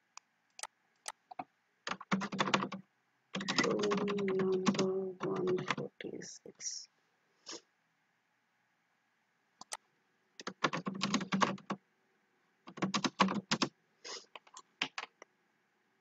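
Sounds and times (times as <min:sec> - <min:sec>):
typing on computer keyboard: 0:00.6 - 0:02.8, 0:03.4 - 0:05.8, 0:10.4 - 0:11.8, 0:12.7 - 0:13.7, 0:14.4 - 0:15.2.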